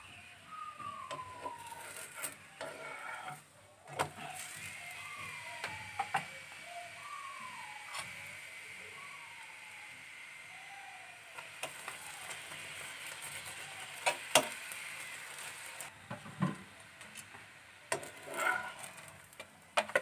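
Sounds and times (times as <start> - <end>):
short falling whistle-like tones: 0.0 - 2.6, 4.2 - 12.7
faint sizzle: 0.0 - 20.0.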